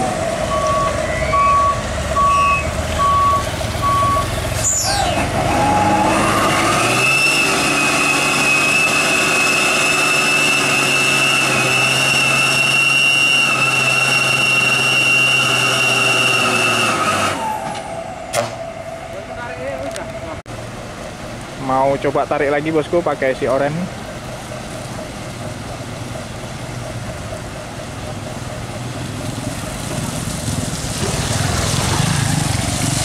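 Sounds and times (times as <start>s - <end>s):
truck diesel engine at high revs: 0.0s - 33.0s
reversing beeps: 0.5s - 4.3s.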